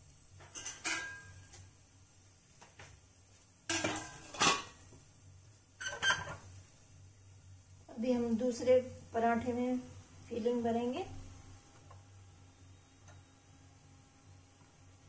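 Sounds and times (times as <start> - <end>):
metal plates clattering: 3.7 - 4.8.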